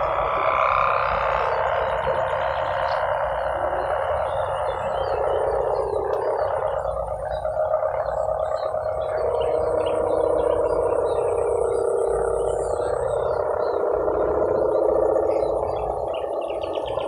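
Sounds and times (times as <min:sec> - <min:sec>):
kite hummer buzzing drone: 0:00.0 - 0:17.0.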